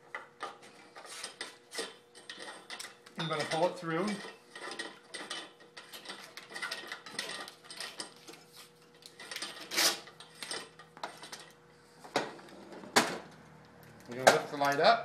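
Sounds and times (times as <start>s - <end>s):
cord rattling and scraping in pipe: 0.1s - 11.6s.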